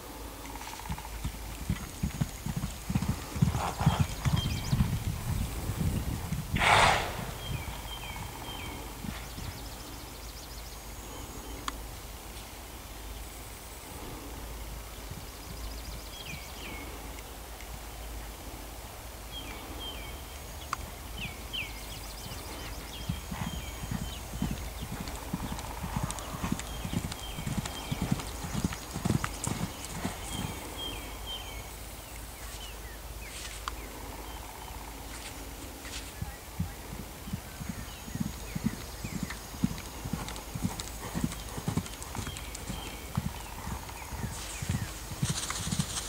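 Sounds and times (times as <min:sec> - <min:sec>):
horse hoofbeats on sand: 0:00.8 - 0:09.5, 0:22.2 - 0:30.9, 0:35.8 - 0:46.0.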